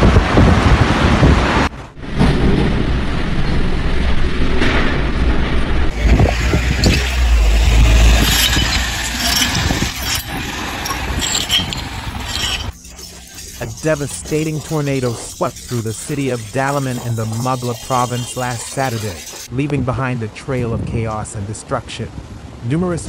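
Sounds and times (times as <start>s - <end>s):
wind buffeting microphone: 0.0s - 12.7s
low wind rumbling: 0.0s - 12.8s.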